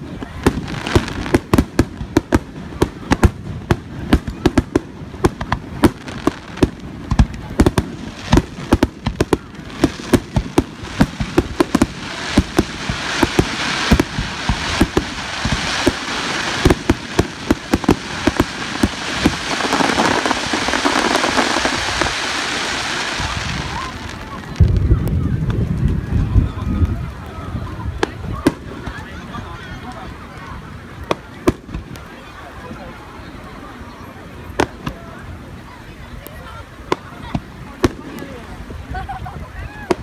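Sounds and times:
firework crackling hiss: 0:00.0 - 0:26.0.

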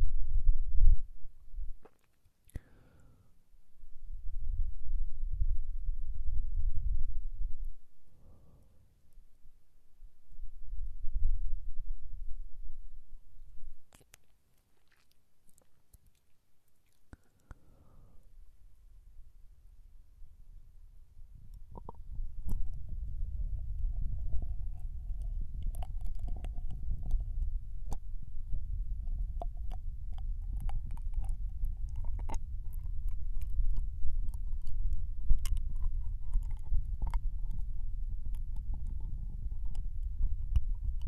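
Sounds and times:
wet mouth clicks: 0:01.8 - 0:02.8, 0:13.9 - 0:17.7, 0:21.5 - 0:23.0, 0:23.6 - 0:28.1, 0:29.0 - 0:41.0
tongue rumbling against microphone: 0:10.1 - 0:41.0.

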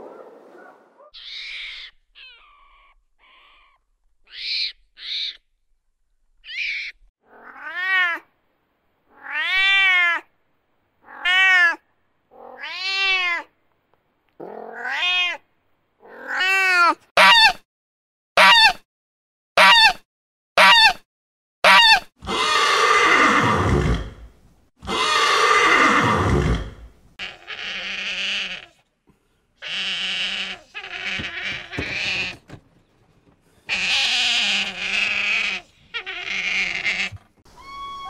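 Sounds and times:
cat meowing: 0:09.1 - 0:10.3, 0:11.0 - 0:11.8, 0:12.4 - 0:13.5, 0:14.7 - 0:15.4
faint short squeaky calls: 0:29.6 - 0:38.0.

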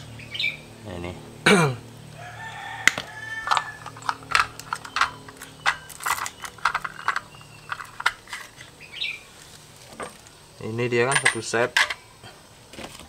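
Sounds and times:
steel bits rattling in plastic case: 0:03.4 - 0:08.7.

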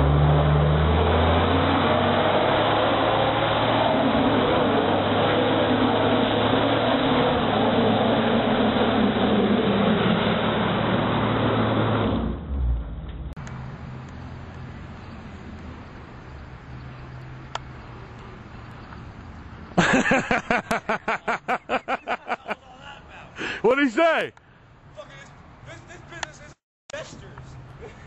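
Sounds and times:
engine at high revs: 0:00.0 - 0:15.5.

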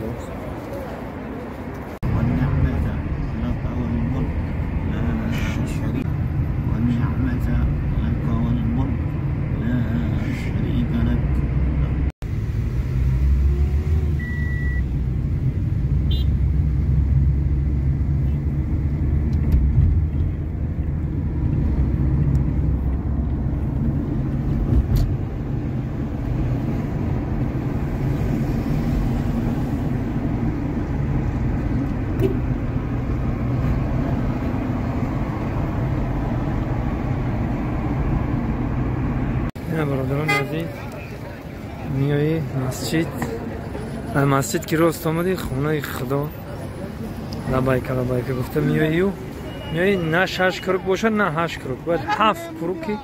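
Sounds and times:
car engine and road rumble: 0:00.0 - 0:53.0
short high beep: 0:14.2 - 0:14.8.

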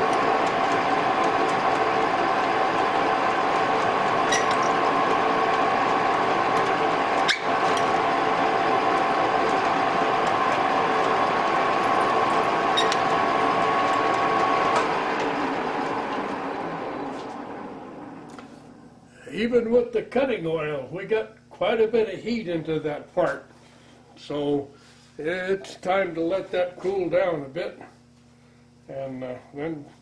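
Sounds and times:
drill bit boring into metal: 0:00.0 - 0:14.6
metal lathe whining: 0:00.0 - 0:18.8.

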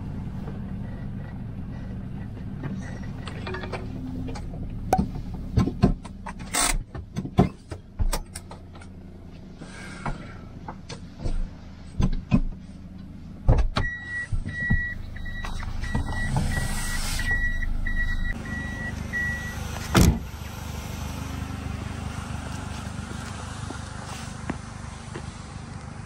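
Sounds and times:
vehicle engine rumbling: 0:00.0 - 0:26.0
electronic beeper beeping: 0:14.1 - 0:19.6.

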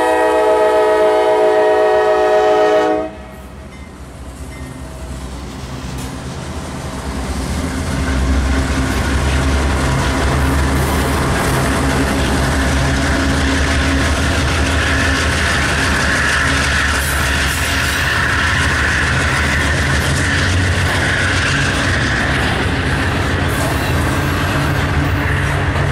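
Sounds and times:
diesel locomotives running: 0:00.0 - 0:25.9
train wheels on rails: 0:00.0 - 0:25.9.

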